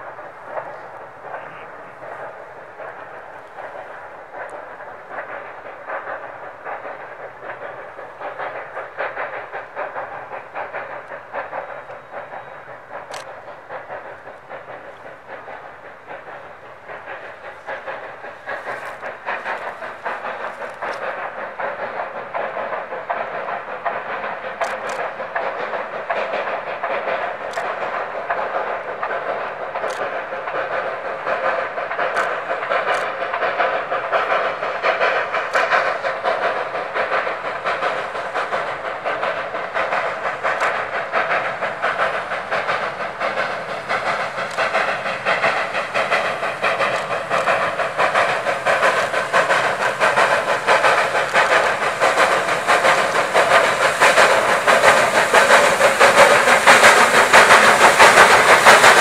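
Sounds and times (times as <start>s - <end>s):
steam locomotive exhaust chuffing: 0.0s - 59.0s
sharp clicks: 2.1s - 15.6s, 17.0s - 59.0s.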